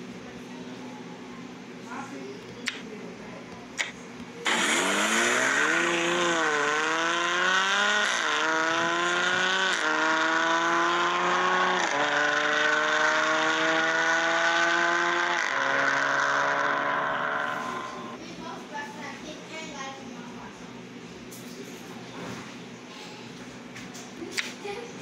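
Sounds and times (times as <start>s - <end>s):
simulated car engine accelerating: 4.4s - 18.2s.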